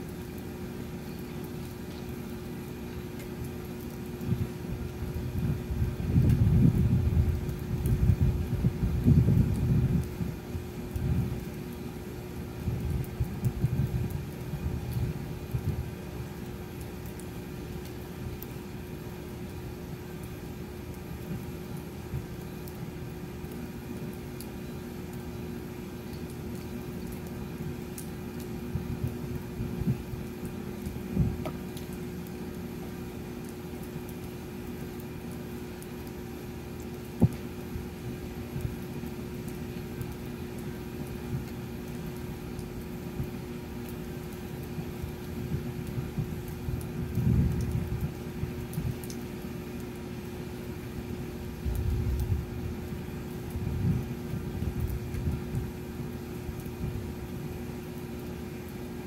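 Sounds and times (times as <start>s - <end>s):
steady rain: 0.0s - 59.0s
low thunder rumble: 4.2s - 10.4s, 53.6s - 55.8s.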